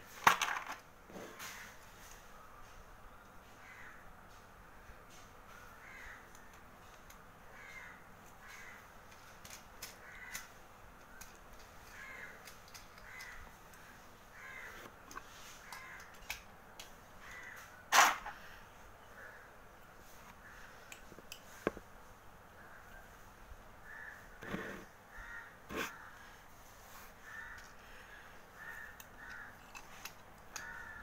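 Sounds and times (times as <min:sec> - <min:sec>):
plastic toy pieces clicking: 0:09.1 - 0:13.8.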